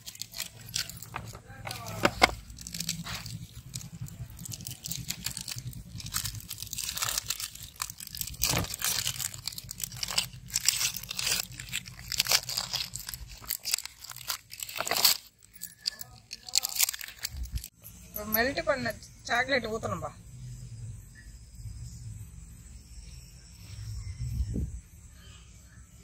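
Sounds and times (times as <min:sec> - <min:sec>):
wrappers crinkling and tearing: 0:00.0 - 0:17.7.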